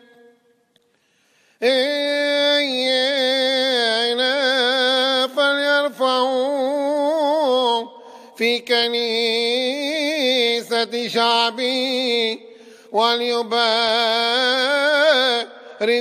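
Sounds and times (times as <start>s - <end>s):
breaths: 0.8s - 1.6s, 7.9s - 8.4s, 12.4s - 13.0s, 15.5s - 15.9s
man chanting: 1.6s - 16.0s.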